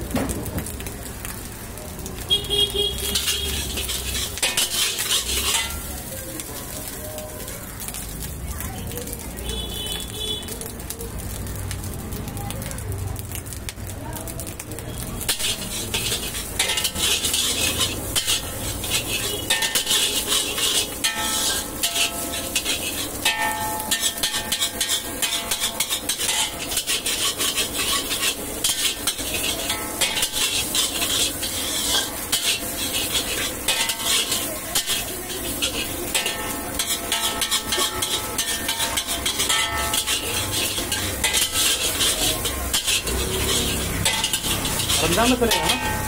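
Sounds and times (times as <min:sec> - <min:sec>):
sizzle of frying: 0:00.0 - 0:46.0
wok ringing: 0:02.1 - 0:07.4, 0:15.0 - 0:46.0
metal ladle scraping a wok: 0:03.0 - 0:06.9, 0:15.1 - 0:46.0.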